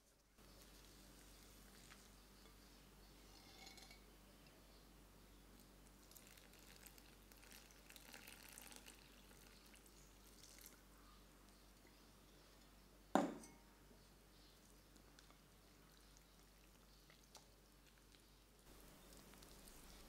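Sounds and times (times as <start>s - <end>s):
water trickling into batter: 5.5s - 12.8s, 14.5s - 20.0s.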